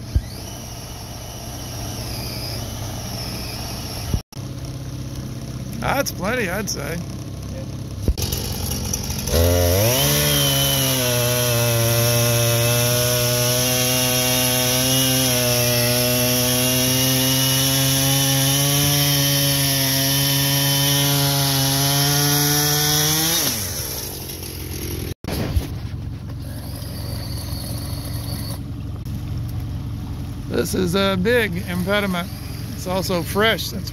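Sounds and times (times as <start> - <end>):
chainsaw cutting log: 0.0 - 4.2, 8.0 - 25.7, 26.3 - 28.6, 31.3 - 33.7.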